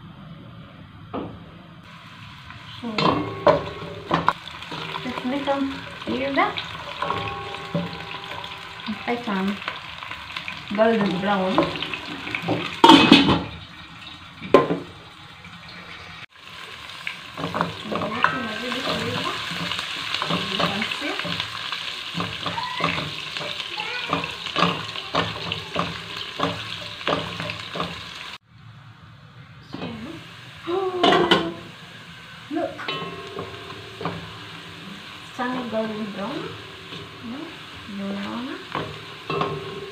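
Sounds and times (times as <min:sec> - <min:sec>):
onions sizzling in oil: 0:01.8 - 0:28.4, 0:29.6 - 0:39.9
wooden spoon knocking pot: 0:17.4 - 0:28.1.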